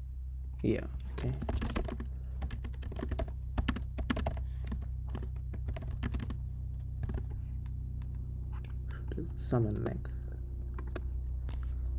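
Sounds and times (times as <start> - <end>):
low hum: 0.0 - 11.9
typing on keyboard: 1.2 - 6.4, 7.0 - 7.3.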